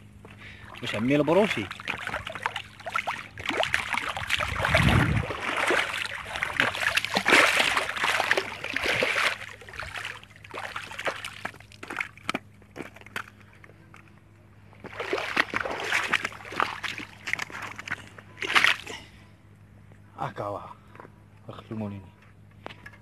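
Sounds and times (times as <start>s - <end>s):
fish splashing in shallow water: 0.4s - 13.4s, 14.8s - 19.0s.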